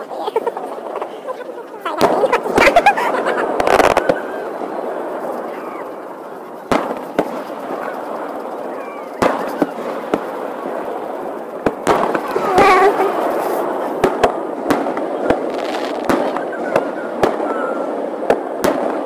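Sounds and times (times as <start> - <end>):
fireworks bursting with sharp bangs: 0.0 - 19.0.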